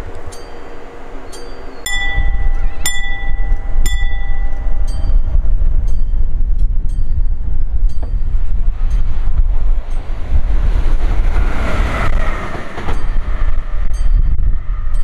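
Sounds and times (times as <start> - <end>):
train passing with low rumble: 0.0 - 15.0
ringing bell-like strike: 0.3 - 9.1.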